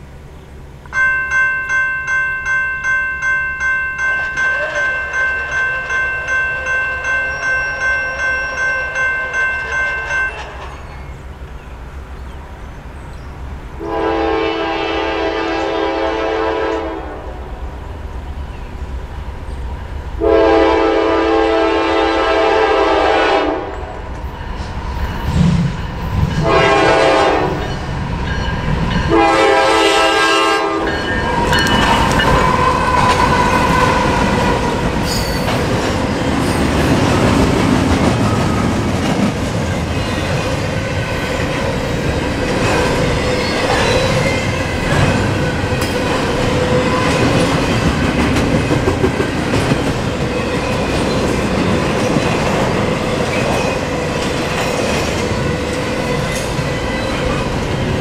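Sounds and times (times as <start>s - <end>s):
locomotive engine and wheel noise: 0.0s - 14.0s, 23.7s - 58.0s
railroad crossing bell ringing: 0.8s - 12.3s, 19.8s - 37.6s, 39.6s - 58.0s
locomotive air horn blasts: 13.8s - 17.4s, 20.2s - 23.9s, 26.4s - 27.7s, 29.1s - 32.6s.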